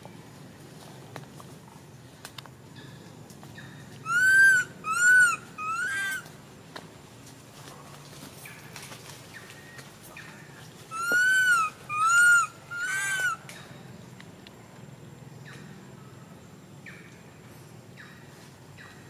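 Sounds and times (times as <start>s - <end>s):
young monkey coo calls: 4.0s - 6.3s, 10.9s - 13.5s.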